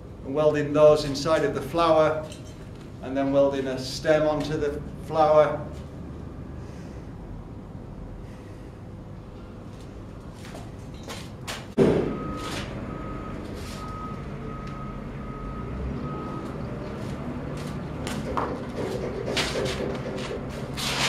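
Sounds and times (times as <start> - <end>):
single-tone beep: 12.1 - 16.6.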